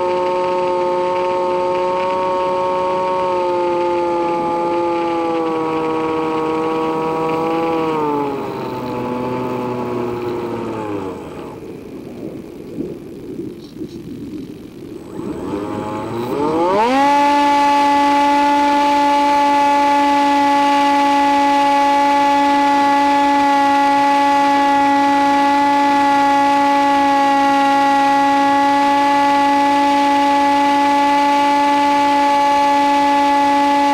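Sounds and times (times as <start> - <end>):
electric motor and propeller whine: 0.0 - 33.9.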